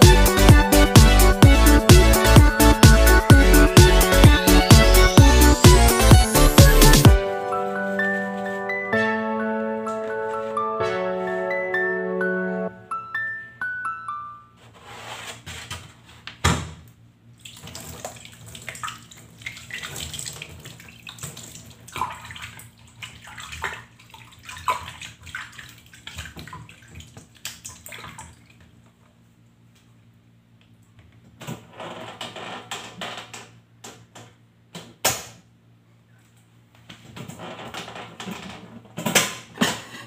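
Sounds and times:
water splashing in sink: 17.4 - 28.6.

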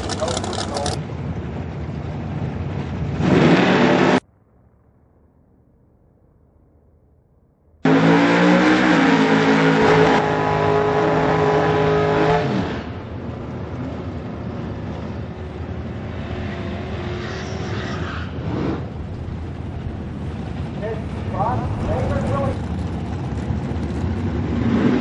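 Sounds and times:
car engine at high revs: 7.8 - 12.9.

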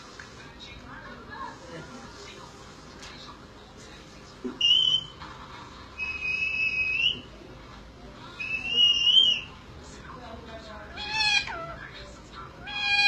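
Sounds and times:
parakeet whistling: 4.6 - 5.2, 6.0 - 7.3, 8.4 - 9.6, 10.9 - 11.8, 12.6 - 13.0.

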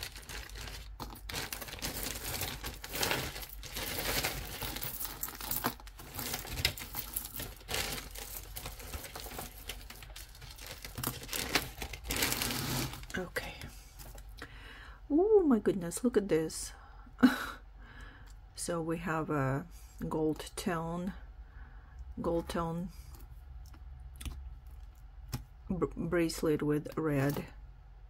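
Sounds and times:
crinkling rustle: 0.0 - 14.4
beads and chains clicking: 1.8 - 10.3.

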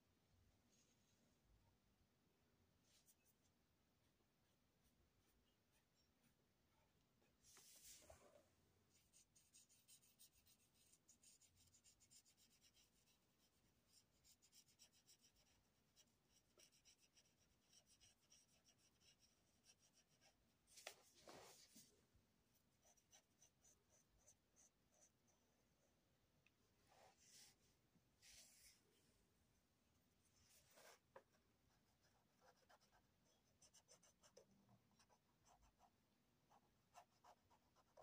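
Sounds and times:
felt-tip marker scratching on paper: 9.0 - 20.4, 22.8 - 25.4, 31.7 - 35.9.

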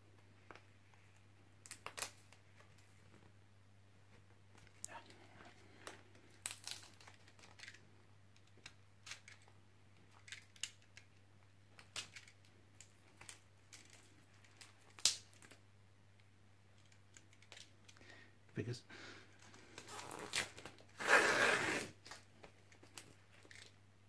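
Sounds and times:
tape crinkling: 0.4 - 3.3, 5.6 - 15.6, 19.4 - 23.8
utility knife slitting packing tape: 19.8 - 22.2.

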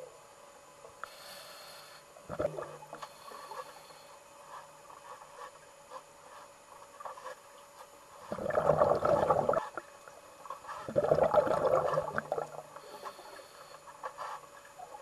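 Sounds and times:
water churning and bubbling: 2.2 - 3.9, 8.2 - 13.8.

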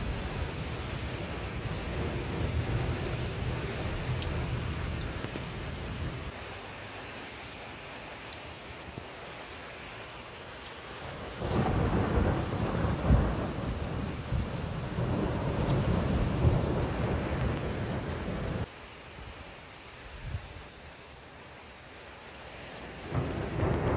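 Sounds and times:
thunder rumbling: 0.0 - 6.3, 11.4 - 18.7, 23.0 - 23.9
heavy rain: 0.0 - 23.9.

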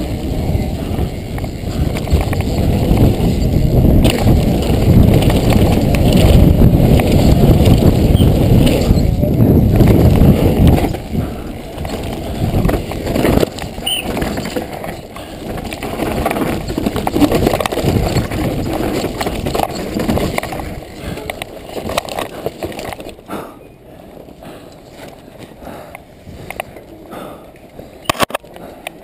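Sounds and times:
wind buffeting microphone: 0.0 - 23.0
bike rattling over bumps: 0.0 - 29.0
tyre noise on dirt: 0.0 - 29.0.

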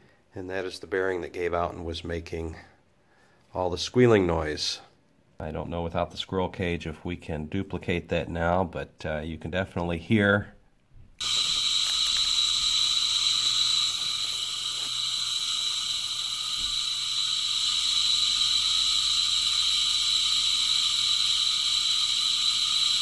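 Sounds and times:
low electrical hum: 0.0 - 23.0
motor high-pitched squeal: 11.2 - 23.0.

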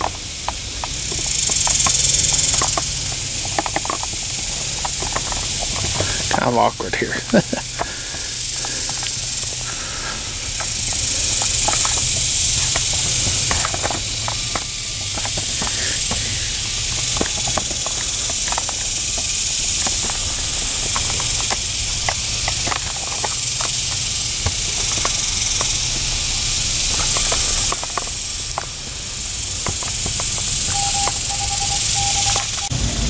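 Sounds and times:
insects buzzing: 0.0 - 33.0
short beeps: 30.7 - 32.8.

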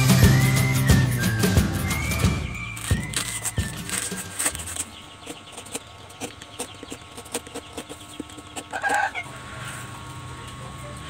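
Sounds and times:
knife scraping coconut shell: 2.7 - 9.2.

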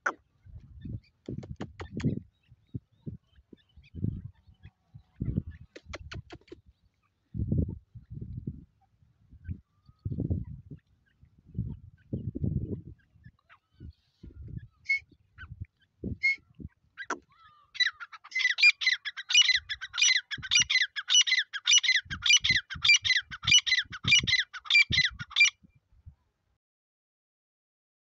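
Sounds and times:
francolin calling: 16.2 - 25.5.

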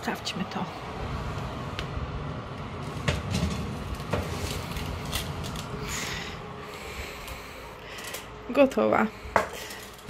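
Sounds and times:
low rumble: 0.0 - 7.8
metal pan scraping over wire rack: 2.8 - 6.1.

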